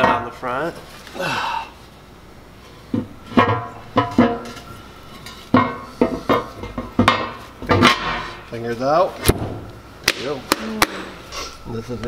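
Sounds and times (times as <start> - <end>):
metal cover plate clanking: 3.3 - 4.6, 5.5 - 8.5.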